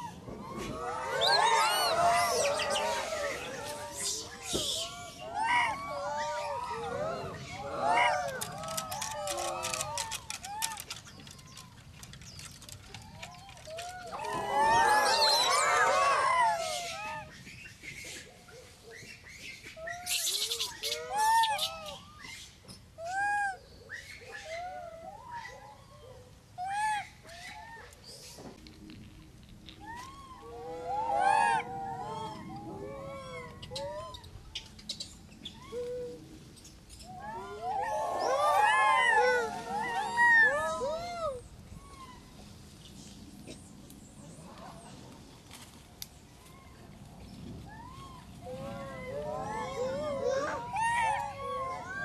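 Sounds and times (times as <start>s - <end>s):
monkey coos: 29.8s - 34.7s, 47.8s - 52.0s.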